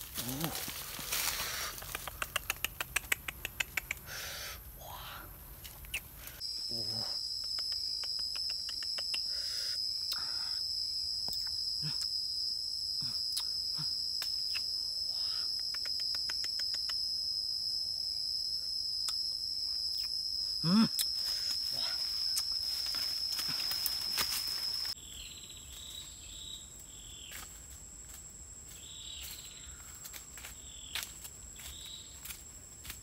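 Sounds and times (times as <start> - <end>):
insects droning: 0.0 - 33.0
fruit plucking snaps: 1.7 - 4.1, 5.6 - 6.1, 7.4 - 9.4, 10.0 - 10.3, 11.2 - 12.1, 13.3 - 14.7, 15.5 - 17.0, 19.0 - 19.2, 19.9 - 20.2.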